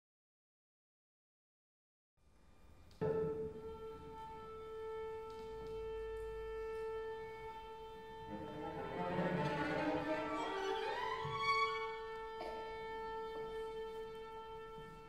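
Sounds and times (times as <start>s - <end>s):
string quartet playing: 3.0s - 15.0s.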